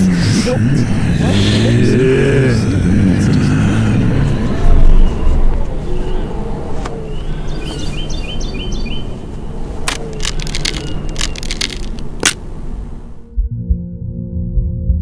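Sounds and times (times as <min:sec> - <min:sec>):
low steady background noise: 0:00.0 - 0:13.3
bird chirps: 0:04.2 - 0:13.0.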